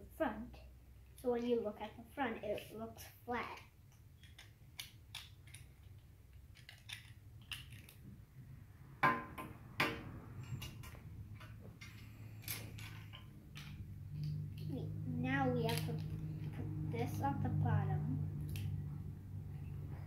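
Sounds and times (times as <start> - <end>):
plastic bricks clicking on glass: 3.9 - 8.0.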